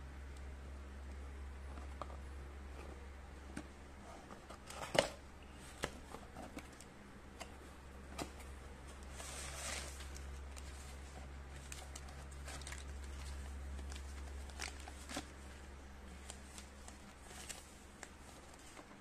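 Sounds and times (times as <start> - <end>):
steady low hum: 0.0 - 19.0
paper rustling: 8.2 - 19.0.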